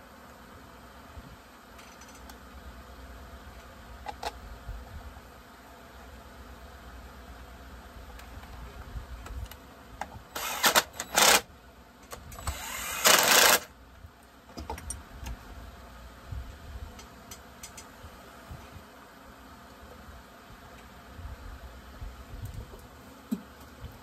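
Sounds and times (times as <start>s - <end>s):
cordless drill running: 10.3s - 11.5s, 12.4s - 13.7s.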